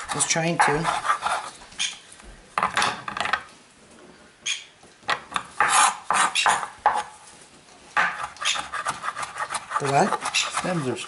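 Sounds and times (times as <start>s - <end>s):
knife chopping on wooden board: 5.4s - 7.1s.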